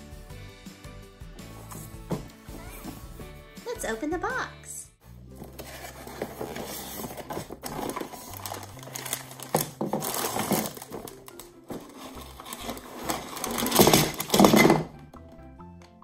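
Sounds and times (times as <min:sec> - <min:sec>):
plastic bags crinkling: 0:05.4 - 0:14.9
plastic bricks tumbling onto table: 0:09.4 - 0:14.9.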